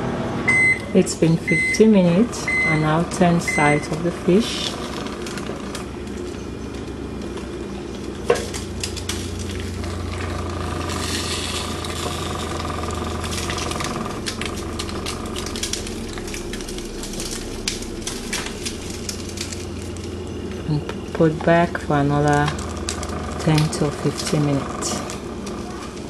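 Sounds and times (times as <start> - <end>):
steady low hum: 0.0 - 26.0
spatula scraping foil: 8.4 - 20.6
fish sizzling on a tray: 8.5 - 20.6.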